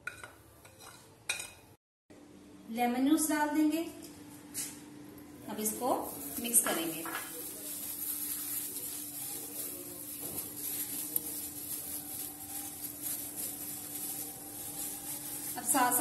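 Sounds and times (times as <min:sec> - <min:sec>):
wet rubbing and squishing: 0:05.7 - 0:16.0.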